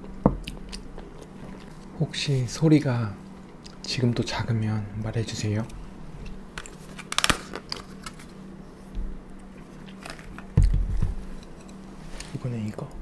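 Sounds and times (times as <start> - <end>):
person chewing: 0.4 - 2.0.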